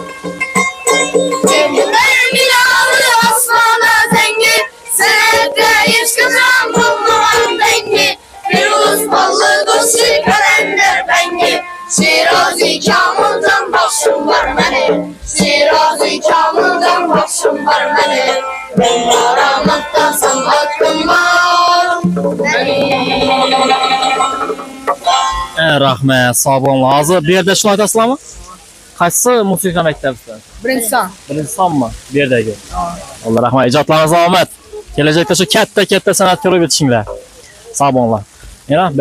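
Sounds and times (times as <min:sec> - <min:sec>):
frame drum: 0:00.0 - 0:25.6
boys singing a folk song: 0:00.0 - 0:25.9, 0:29.8 - 0:39.0
plucked lutes: 0:00.0 - 0:27.5.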